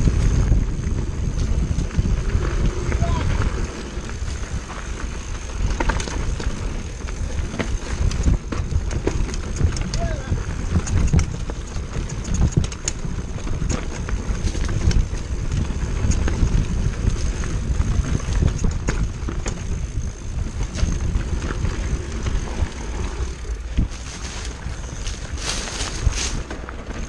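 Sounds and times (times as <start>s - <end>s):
bike rattling over rocks: 0.0s - 27.0s
wind buffeting microphone: 0.0s - 27.0s.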